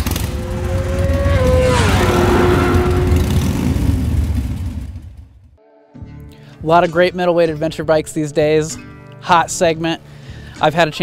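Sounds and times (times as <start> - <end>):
vehicle engine passing by: 0.0 - 5.3.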